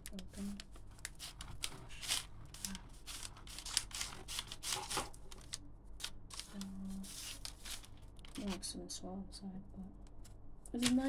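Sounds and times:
knife sawing through crusty pastry: 1.2s - 5.1s.

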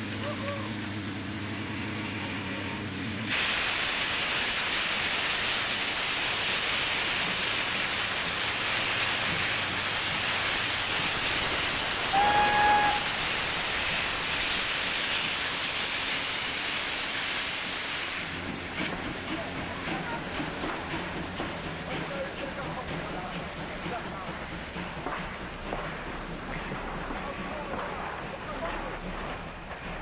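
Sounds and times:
steam hissing from locomotive: 0.0s - 30.0s
steam whistle blast: 12.0s - 13.5s.

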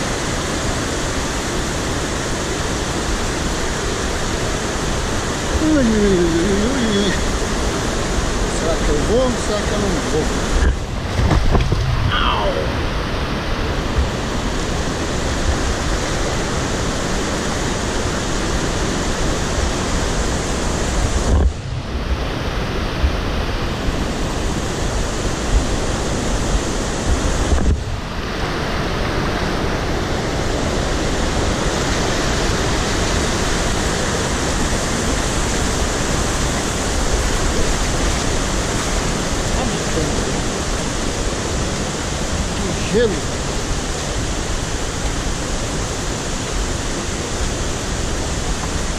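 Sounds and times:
river rushing over rocks: 0.0s - 48.9s.

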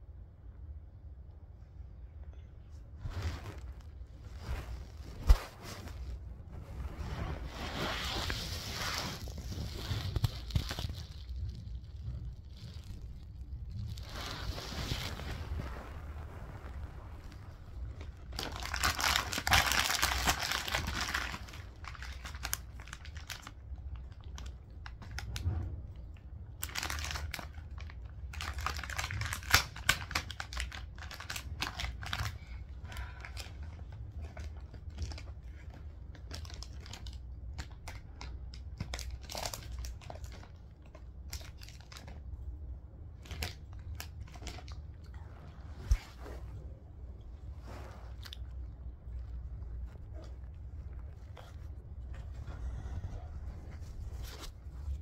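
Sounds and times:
plastic packet crackling: 7.7s - 16.1s, 16.7s - 25.3s, 26.6s - 42.2s.

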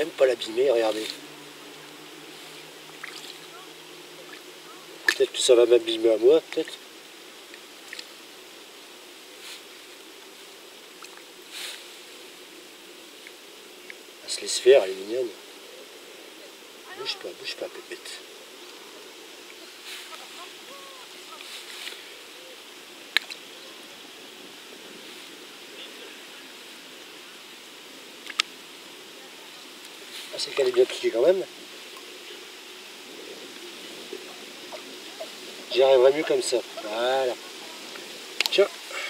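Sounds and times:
faint steady hum: 0.0s - 39.0s
outdoor background hiss: 0.0s - 39.0s
fish splashing in shallow water: 2.4s - 3.5s, 7.4s - 8.4s.

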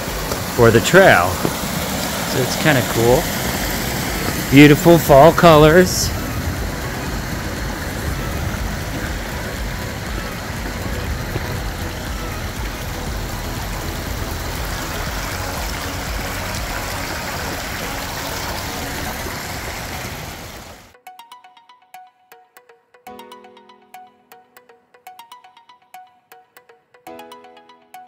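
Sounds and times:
stream cascading over rocks: 0.0s - 20.9s
faint music notes: 0.1s - 20.7s.

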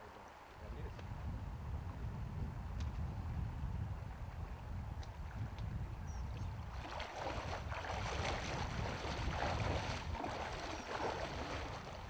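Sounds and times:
wind rumble on microphone: 0.0s - 12.0s
river water sloshing and splashing: 6.7s - 12.0s.

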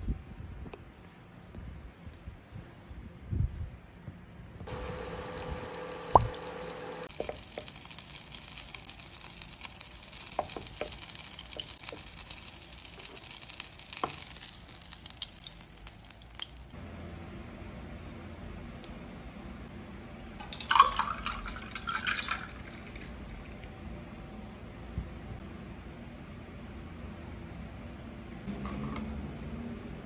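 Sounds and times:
steady hum: 4.4s - 7.8s
oil sizzling in a frying pan: 4.7s - 16.8s.

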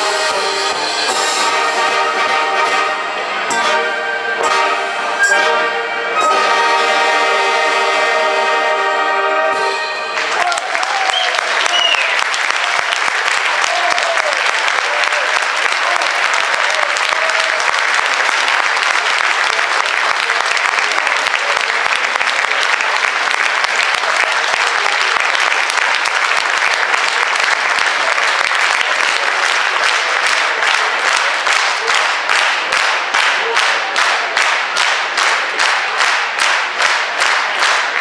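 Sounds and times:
audience applauding: 9.5s - 38.0s
rhythmic clapping in unison: 9.6s - 38.0s.

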